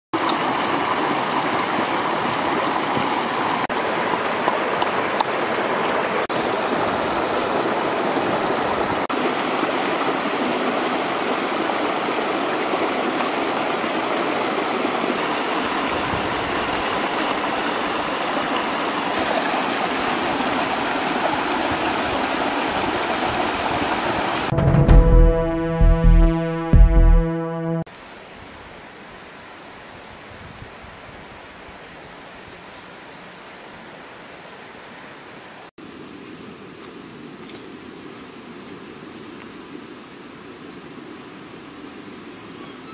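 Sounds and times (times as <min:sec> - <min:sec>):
river splashing over rocks: 0:00.2 - 0:24.5.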